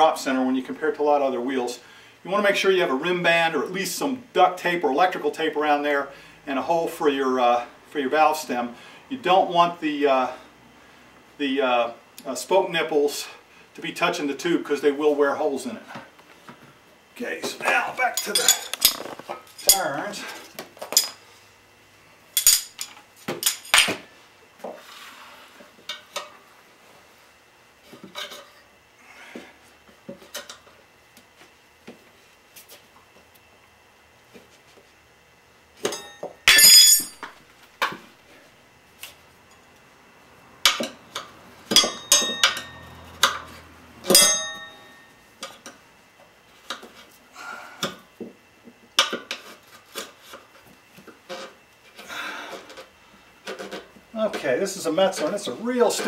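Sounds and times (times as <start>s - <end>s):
tire irons clinking on wheel rim: 35.8s - 37.3s, 40.6s - 45.7s.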